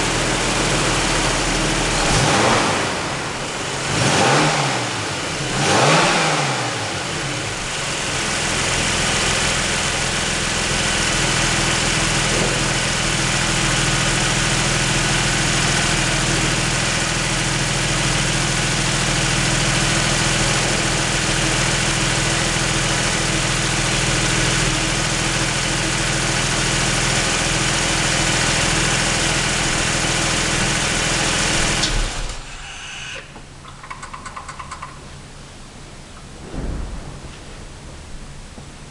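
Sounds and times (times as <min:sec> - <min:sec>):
car engine revving: 0:00.0 - 0:09.5
car engine idling: 0:00.0 - 0:38.9.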